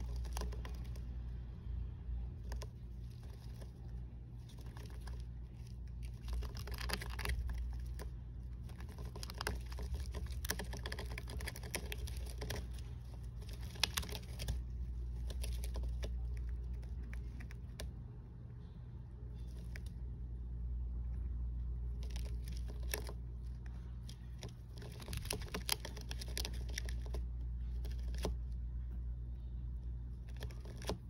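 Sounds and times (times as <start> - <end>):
hamster scratching in bedding: 0.0 - 1.1, 2.3 - 17.8, 21.9 - 28.4.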